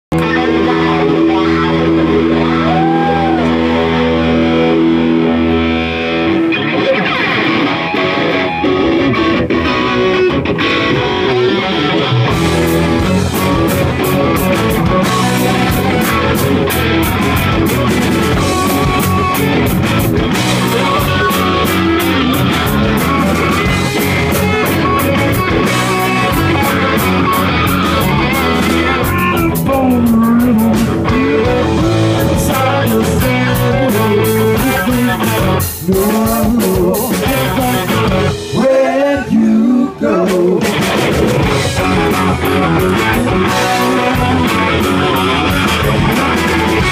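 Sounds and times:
live rock band playing: 0.1 - 46.9
drums and cymbals: 12.3 - 38.8, 40.3 - 46.9.

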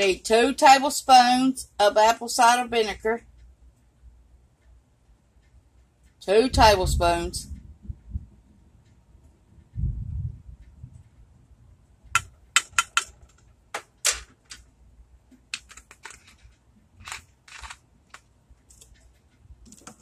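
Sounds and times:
plastic measuring spoons clattering: 15.6 - 17.8.

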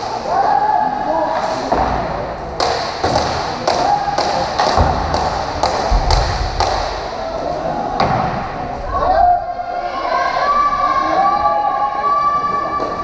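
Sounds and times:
sharp rhythmic knocks: 2.6 - 7.2.

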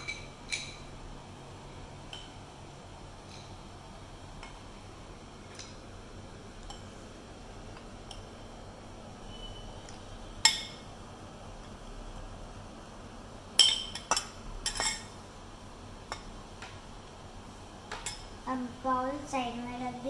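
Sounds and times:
metal spoon scraping glass bowl: 9.2 - 9.8
spoon clinking on glass: 13.6 - 15.1.

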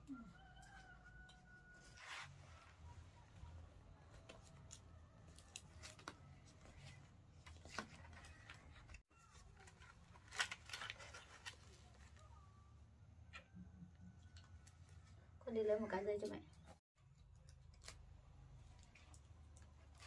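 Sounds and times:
leaves crackling being folded: 4.1 - 12.3, 17.2 - 20.0.

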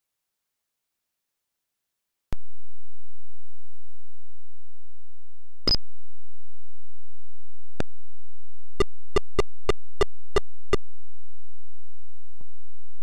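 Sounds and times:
synthesized clicks: 9.2 - 10.4.

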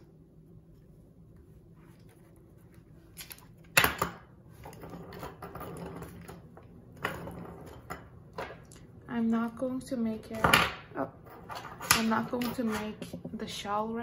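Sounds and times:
tape and plastic rustling: 1.7 - 3.8.

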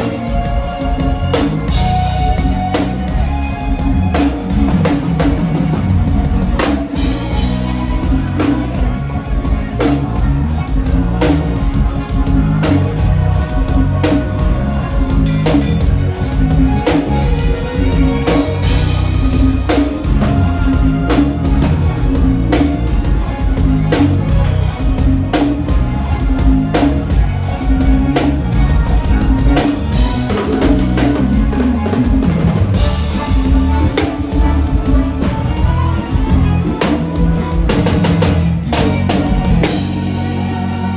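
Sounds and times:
drum kit steady beat: 0.0 - 40.9.

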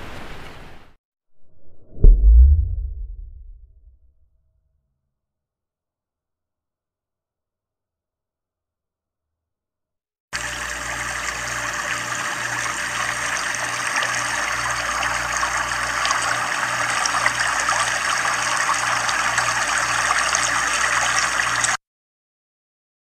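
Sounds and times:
low pulsing hum: 1.4 - 4.4
rushing water-like noise: 10.4 - 21.8.

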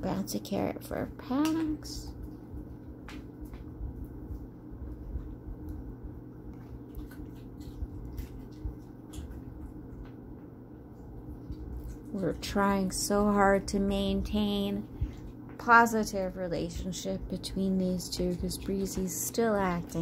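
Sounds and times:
low room hum: 0.0 - 20.0
dog crunching carrot: 5.1 - 10.2.

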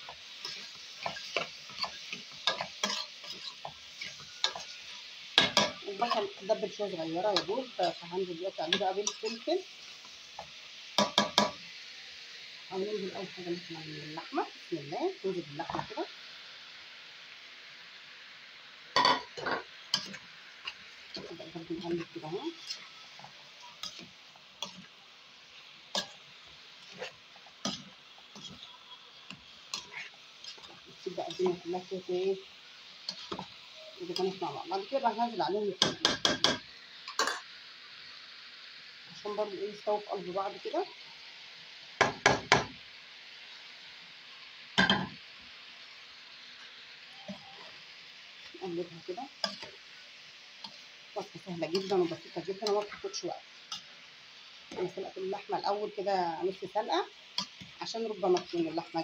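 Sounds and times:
metal spoon stirring in pot: 0.0 - 8.0, 8.6 - 9.5, 19.0 - 25.0, 25.9 - 31.7, 33.0 - 34.4, 49.0 - 49.8, 50.6 - 54.0
onions sizzling in oil: 0.0 - 59.0
spoon clinking and scraping pot: 0.4 - 4.7, 19.0 - 21.3.

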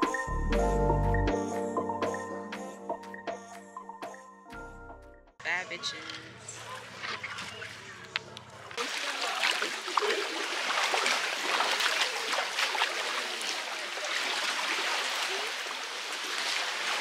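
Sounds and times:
small sharp splashes: 8.6 - 17.0
river water rushing: 8.8 - 17.0.

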